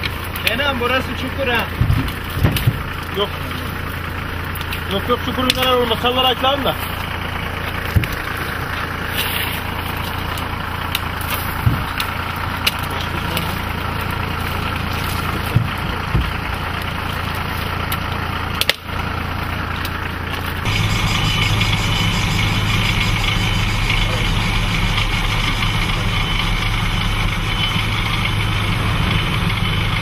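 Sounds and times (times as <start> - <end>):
engine idling: 0.0 - 30.0
louder engine hum: 0.0 - 30.0
sharp knocks and cracks: 1.7 - 3.2, 7.6 - 8.6, 9.2 - 14.1, 14.8 - 18.9.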